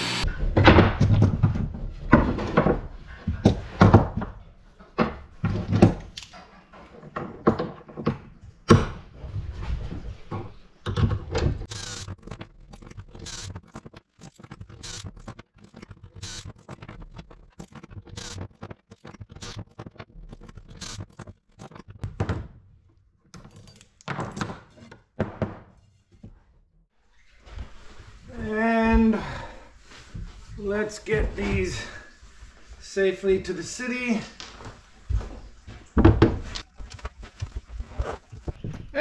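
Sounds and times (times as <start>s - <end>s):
cordless drill drilling wood: 0.0s - 0.2s, 11.7s - 12.1s, 13.2s - 13.5s, 14.8s - 15.0s, 16.2s - 16.4s, 18.2s - 18.4s
wood and tools knocking on workbench: 24.1s - 26.4s, 36.0s - 36.6s.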